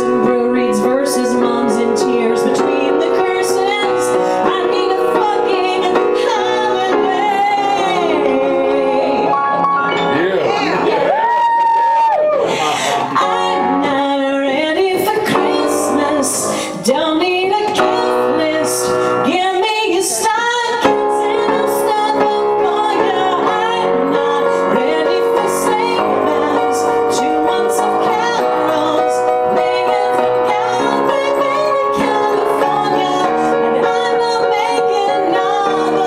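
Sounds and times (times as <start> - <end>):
woman singing: 0.0 - 9.3, 12.9 - 36.0
grand piano: 0.0 - 36.0.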